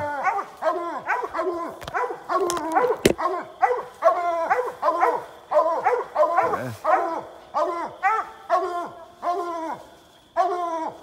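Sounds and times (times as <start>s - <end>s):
hounds barking: 0.0s - 9.6s, 10.4s - 10.9s
sharp crack: 1.8s - 3.3s.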